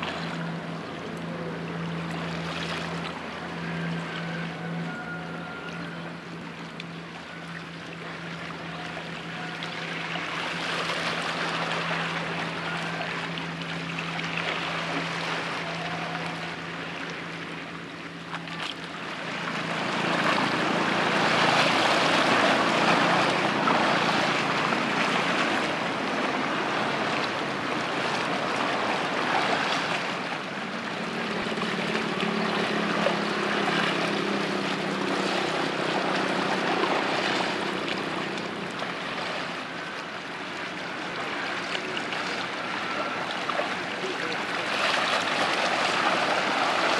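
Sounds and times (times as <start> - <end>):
low machinery hum: 0.0 - 46.9
water rushing past ship: 0.0 - 46.9.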